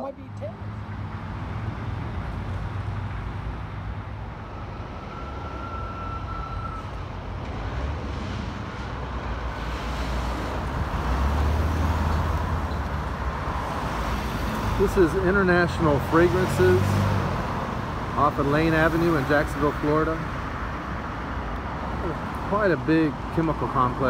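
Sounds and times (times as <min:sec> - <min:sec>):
heavy truck rumbling: 0:00.0 - 0:24.0
road traffic: 0:00.0 - 0:24.0.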